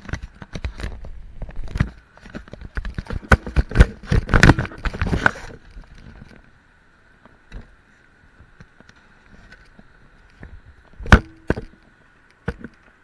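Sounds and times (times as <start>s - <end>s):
camera handling knocks and rubbing: 0.0s - 5.6s.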